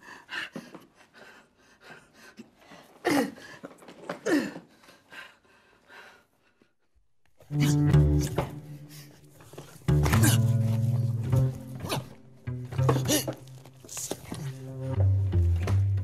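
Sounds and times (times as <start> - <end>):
person breathing and gasping: 7.5 - 10.8.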